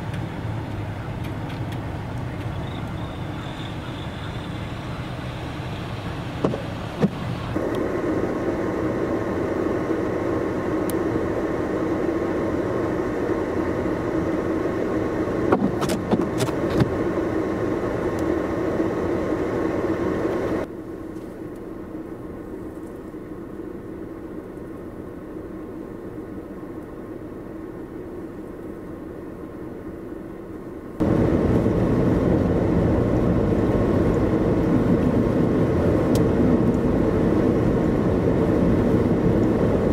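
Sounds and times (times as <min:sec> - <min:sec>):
trucks idling: 0:00.0 - 0:08.6
vehicle driving on snowy road: 0:00.0 - 0:39.9.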